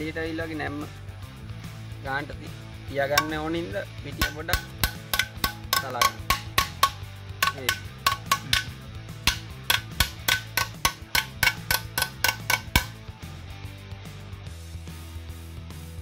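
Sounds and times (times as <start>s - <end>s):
background music: 0.0s - 16.0s
hammer tapping on metal: 3.2s - 3.5s, 4.2s - 13.0s.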